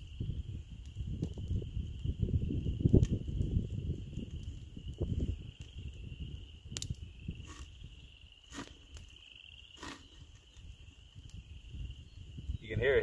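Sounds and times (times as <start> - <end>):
wood fire crackling: 0.0 - 13.0.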